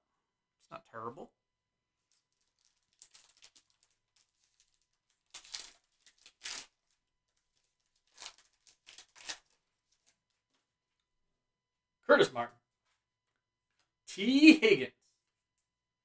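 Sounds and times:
plastic wrapper crinkling and tearing: 2.0s - 10.6s.

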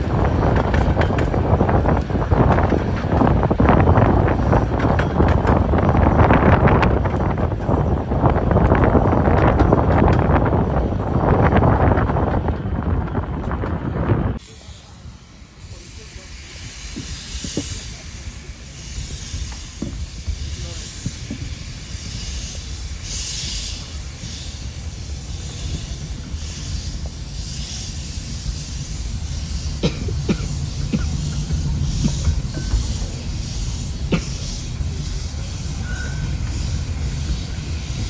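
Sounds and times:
steam locomotive exhaust beats: 0.0s - 38.0s
train wheels rumbling: 0.0s - 38.0s
steam hiss: 14.4s - 38.0s.

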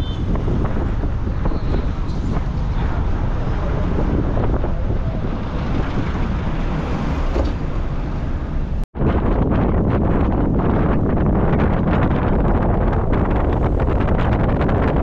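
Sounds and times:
vehicle rumble: 0.0s - 15.0s
wind rushing over microphone: 0.0s - 15.0s.

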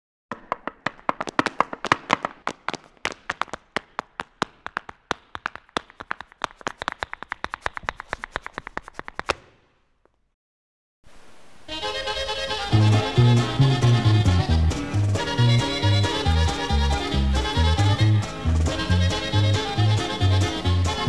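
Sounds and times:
heeled boots tapping on pavement: 0.3s - 9.5s.

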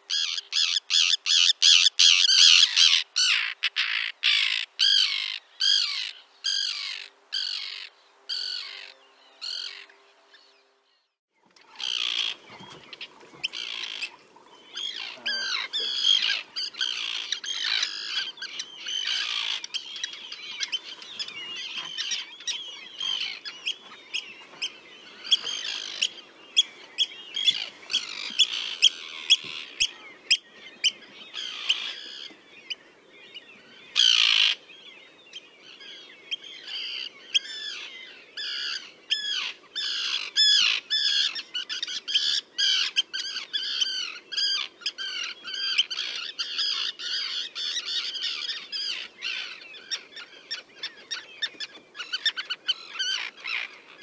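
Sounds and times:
tern colony calling: 11.6s - 32.4s.

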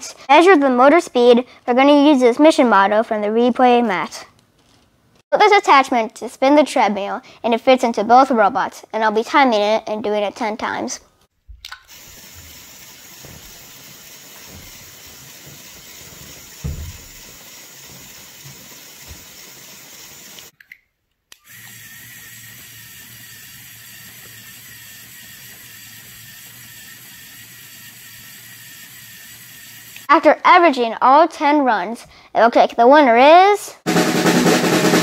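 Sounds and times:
motor driving gear train whirr: 11.9s - 20.5s, 21.4s - 30.1s
single thump: 16.6s - 17.1s.

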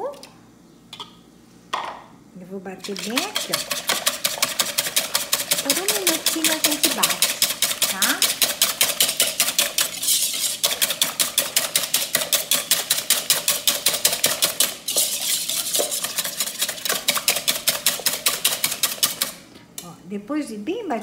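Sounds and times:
whisk rattling in a bowl: 2.8s - 19.4s.

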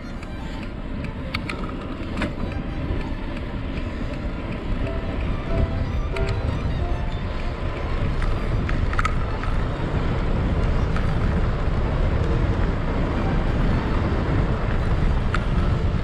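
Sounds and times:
bicycle tyre noise on asphalt: 0.0s - 16.0s
wind rushing over microphone: 0.0s - 16.0s.

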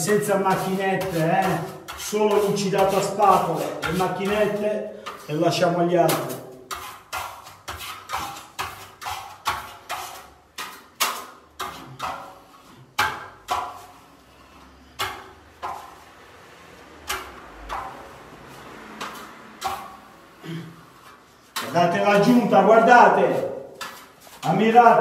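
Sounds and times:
steel trowel scraping plaster: 0.0s - 16.1s.

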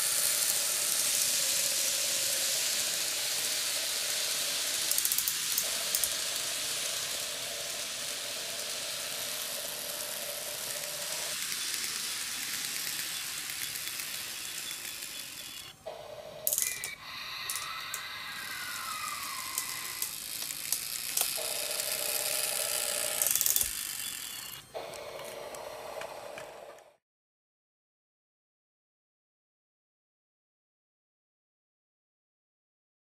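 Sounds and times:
model train wheels clattering: 0.0s - 15.8s, 16.4s - 26.6s
electric motor whine: 0.0s - 27.0s.

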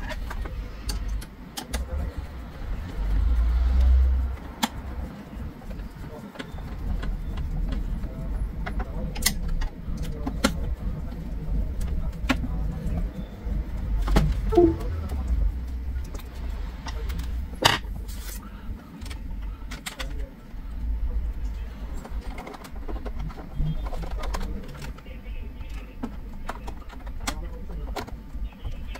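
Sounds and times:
cable connectors clicking and knocking: 8.6s - 11.2s.

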